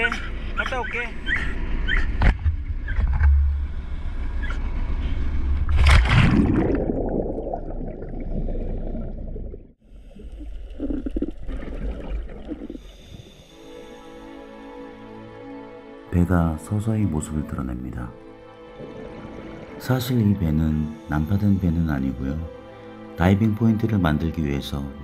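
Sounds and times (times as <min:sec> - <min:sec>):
diver splashing into water: 0:05.7 - 0:07.4
regulator bubbling underwater: 0:05.7 - 0:13.1
underwater rush of bubbles: 0:05.7 - 0:13.1.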